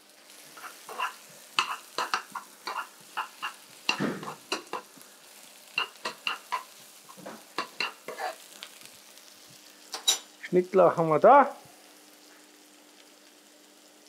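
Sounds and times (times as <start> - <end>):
onions sizzling in a frying pan: 0.0 - 14.0
metal spoon scraping a pan: 0.5 - 4.9, 5.7 - 8.4.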